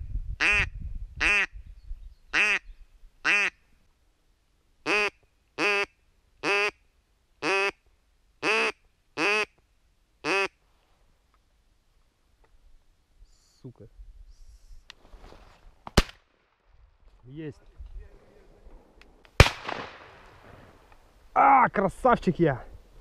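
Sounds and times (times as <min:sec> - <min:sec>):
duck call quacks: 0:00.4 - 0:01.5, 0:02.4 - 0:02.6, 0:03.2 - 0:03.6, 0:04.9 - 0:06.8, 0:07.4 - 0:07.8, 0:08.4 - 0:09.6, 0:10.2 - 0:10.6.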